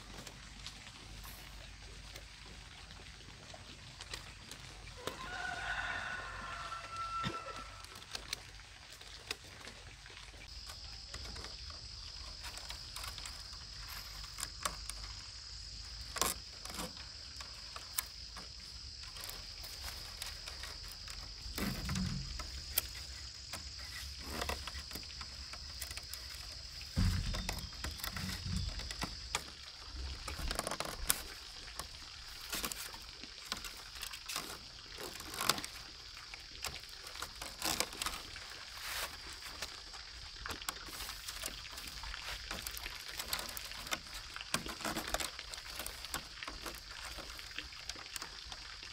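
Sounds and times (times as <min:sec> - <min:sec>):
bamboo strips clicking and rustling: 0:00.0 - 0:48.9
dull handling knocks: 0:26.8 - 0:29.2.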